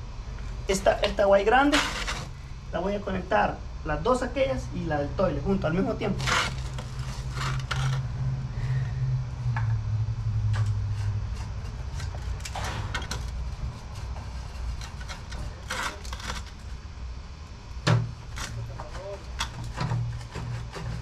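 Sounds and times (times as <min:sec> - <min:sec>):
steady low hum: 0:00.0 - 0:21.0
plastic pipe knocks and scrapes: 0:17.8 - 0:21.0.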